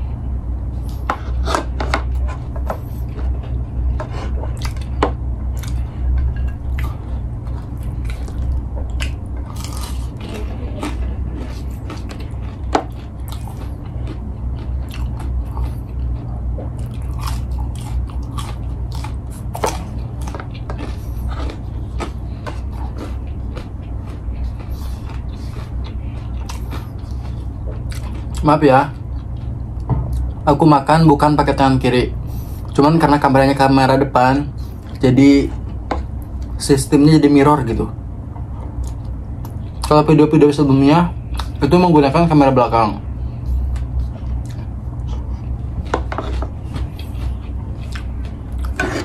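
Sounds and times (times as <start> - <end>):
steady low hum: 0.0 - 49.0
person chewing food: 0.7 - 30.4, 34.6 - 36.6, 38.4 - 40.1, 41.2 - 41.6, 43.1 - 49.0
small crunches: 6.7 - 28.5.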